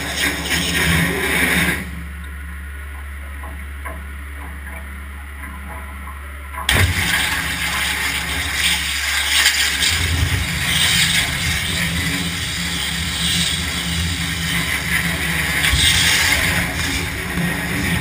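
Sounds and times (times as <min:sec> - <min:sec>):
water jet hissing: 0:00.0 - 0:02.0, 0:06.7 - 0:18.0
machine humming: 0:00.0 - 0:18.0.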